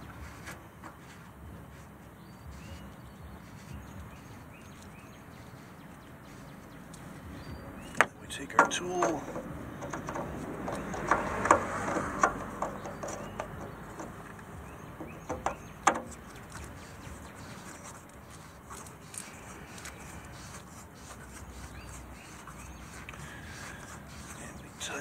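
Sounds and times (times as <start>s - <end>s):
faint steady background noise: 0.0s - 25.0s
tool clicking on plastic: 8.0s - 14.4s.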